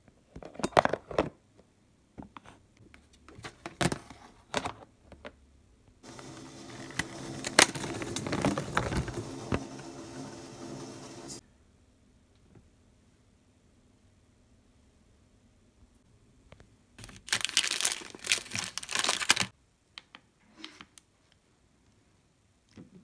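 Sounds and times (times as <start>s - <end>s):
plastic containers clicking and rattling: 0.4s - 1.4s, 6.1s - 9.6s.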